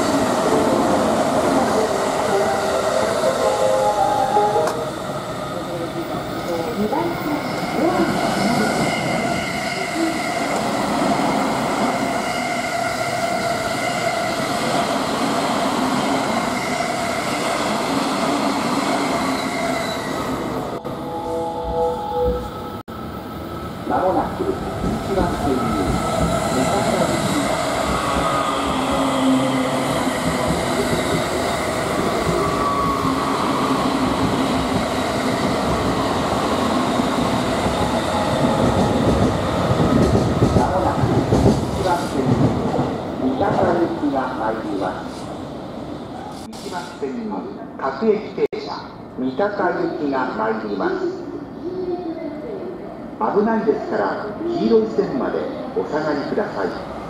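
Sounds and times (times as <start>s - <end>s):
train wheels rushing on rail: 24.0s - 44.0s.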